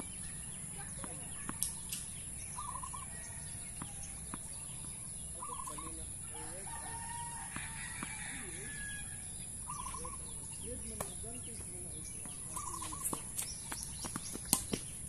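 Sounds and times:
bird rapid trill: 0.0 - 6.5, 7.8 - 10.6, 12.4 - 15.0
rooster crowing: 6.4 - 9.3
tennis ball hitting racket: 12.7 - 15.0.

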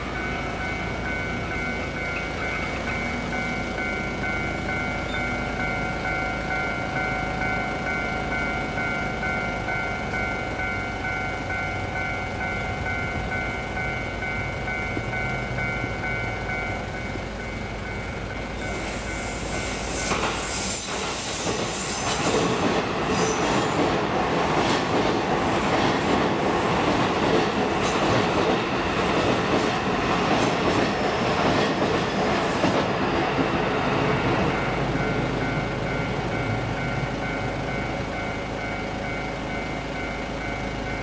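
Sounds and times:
level-crossing bell ringing: 0.0 - 19.9, 34.4 - 41.0
electric train passing: 0.0 - 41.0
high wheel squeal: 18.6 - 22.3.

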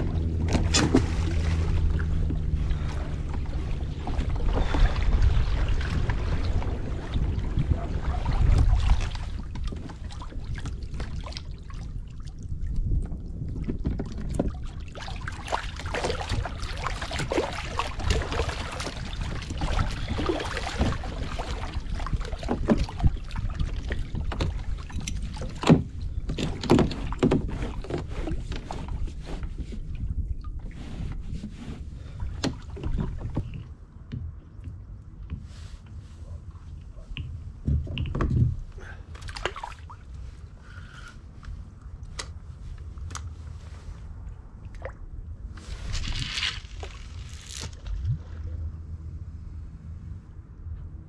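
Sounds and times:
wind buffeting microphone: 0.0 - 35.4
water lapping against kayak hull: 0.0 - 49.2.

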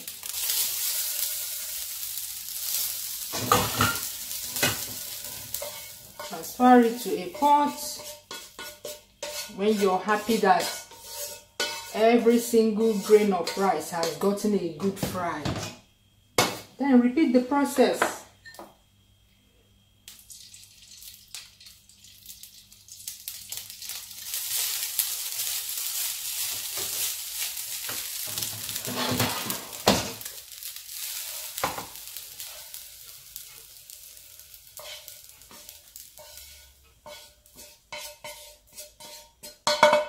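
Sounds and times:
rice sizzling in oil: 0.0 - 15.5, 19.9 - 40.0
spatula scraping and knocking pan: 3.3 - 15.8, 25.4 - 30.4, 34.8 - 40.0.

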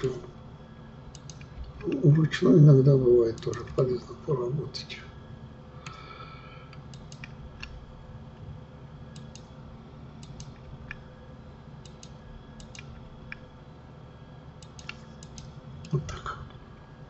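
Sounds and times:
steady low hum: 0.0 - 17.0
mouse and keyboard clicks: 14.6 - 15.5.

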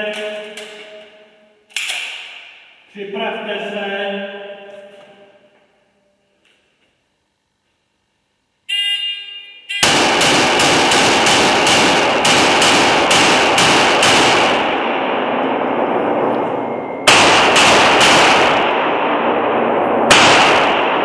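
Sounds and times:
pistol shots reverberating: 9.8 - 21.0.

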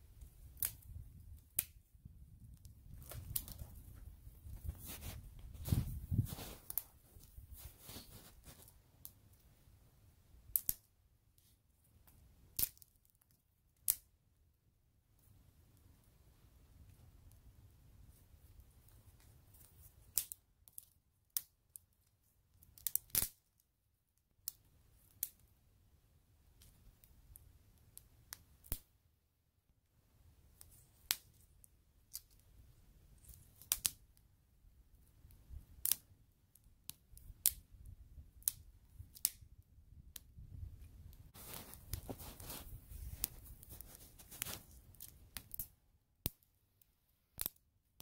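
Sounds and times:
campfire crackling and popping: 0.1 - 9.2, 10.4 - 10.9, 12.0 - 14.1, 22.6 - 23.6, 26.6 - 29.0, 30.6 - 34.2, 35.0 - 46.5, 47.4 - 47.6.

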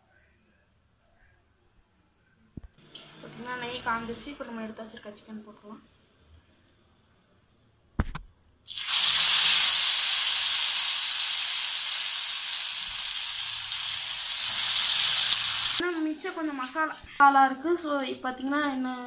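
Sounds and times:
chicken sizzling in hot fat: 8.7 - 15.8.

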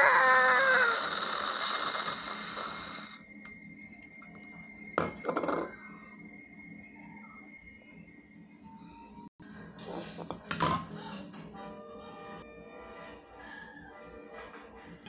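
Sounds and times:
person screaming: 0.0 - 1.3.

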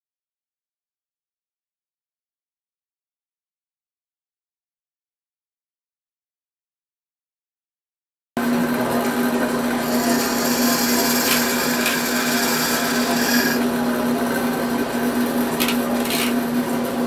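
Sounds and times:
bandsaw motor hum: 8.4 - 17.0
saw blade cutting wood: 9.7 - 13.8.

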